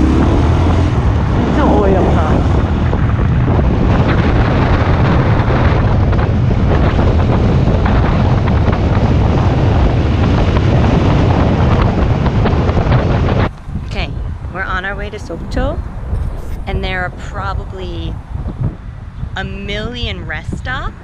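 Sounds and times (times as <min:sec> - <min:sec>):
motorcycle engine: 0:00.0 - 0:14.1
road noise: 0:00.0 - 0:21.0
wind buffeting microphone: 0:00.0 - 0:21.0.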